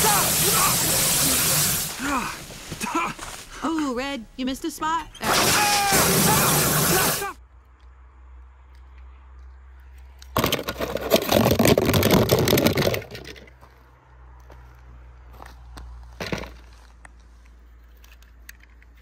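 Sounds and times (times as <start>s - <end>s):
toy cars clattering: 10.2s - 13.6s.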